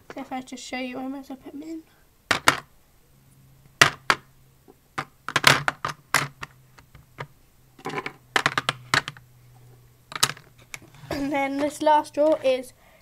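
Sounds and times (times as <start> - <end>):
faint low hum: 0.0 - 13.0
plastic tubes clicking together: 5.0 - 9.2, 10.1 - 10.8.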